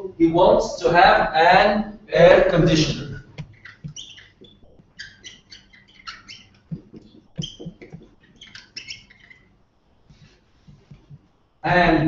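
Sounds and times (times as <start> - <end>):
marker squeaking on a whiteboard: 2.4 - 11.4
marker tip tapping: 3.4 - 9.4.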